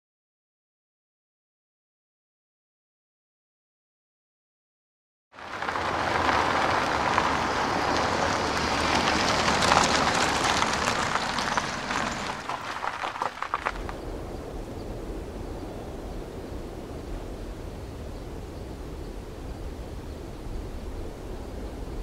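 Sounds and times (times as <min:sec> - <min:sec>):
steady rushing hiss: 0:05.4 - 0:22.0.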